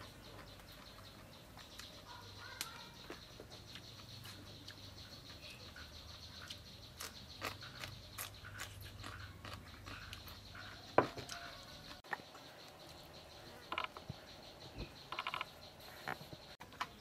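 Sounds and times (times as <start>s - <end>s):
chewing: 0.3s - 13.0s.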